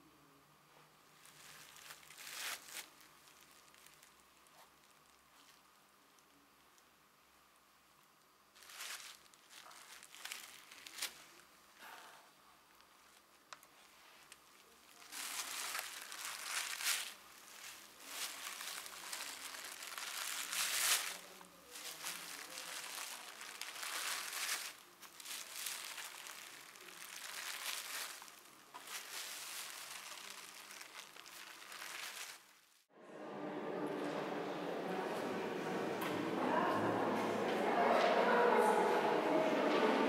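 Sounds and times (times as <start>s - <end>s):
feet walking on plastic sheeting: 1.2s - 5.6s, 8.6s - 11.4s, 14.2s - 32.8s.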